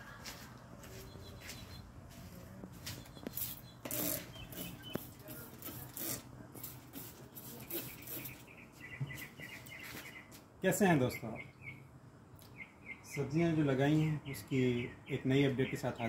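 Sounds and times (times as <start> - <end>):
spray bottle spritzes: 3.4 - 8.4.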